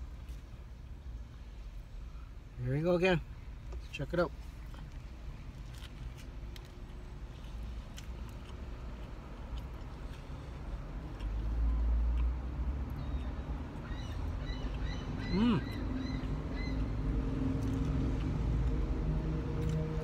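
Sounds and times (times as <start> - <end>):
low steady rumble: 0.0 - 20.0
person chewing: 4.6 - 13.2, 15.6 - 20.0
bird chirping: 13.0 - 17.0.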